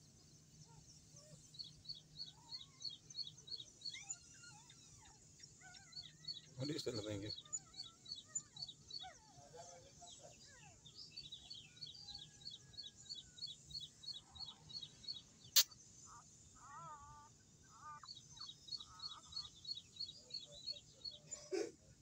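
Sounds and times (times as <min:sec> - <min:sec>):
wavering bird calls: 0:15.6 - 0:21.4.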